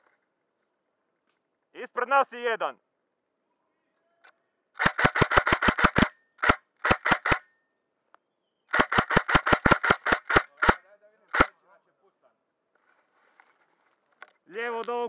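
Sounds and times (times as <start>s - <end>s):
airsoft gun rapid shots: 4.8s - 7.5s, 8.7s - 11.5s.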